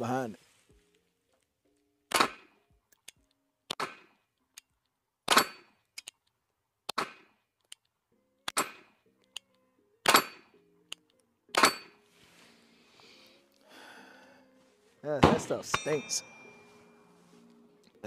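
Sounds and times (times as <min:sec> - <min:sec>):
pistol shots: 0:02.1 - 0:02.6, 0:03.7 - 0:04.2.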